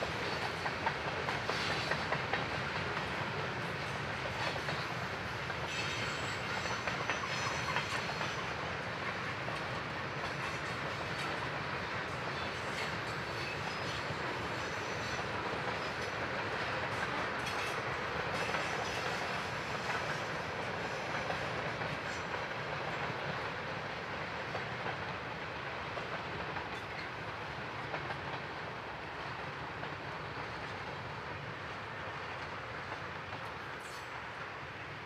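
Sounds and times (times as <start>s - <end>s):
freight train wheels rumbling: 0.0s - 35.0s.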